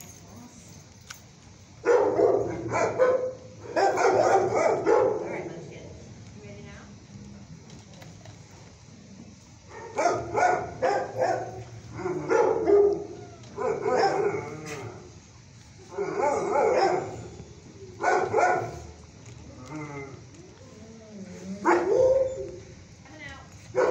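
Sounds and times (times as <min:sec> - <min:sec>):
dogs barking: 0:01.8 - 0:05.5, 0:09.7 - 0:15.1, 0:15.9 - 0:17.4, 0:18.0 - 0:19.0, 0:21.6 - 0:22.6.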